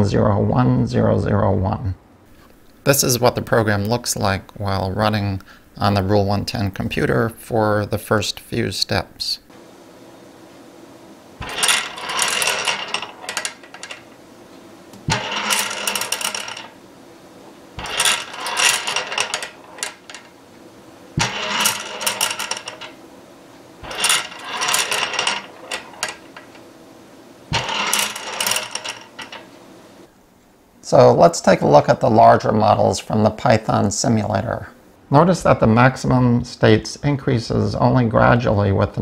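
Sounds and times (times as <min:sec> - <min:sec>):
marbles rattling on metal tracks: 0:11.4 - 0:14.2, 0:15.0 - 0:16.8, 0:17.8 - 0:20.4, 0:21.2 - 0:23.1, 0:23.8 - 0:26.7, 0:27.5 - 0:29.6.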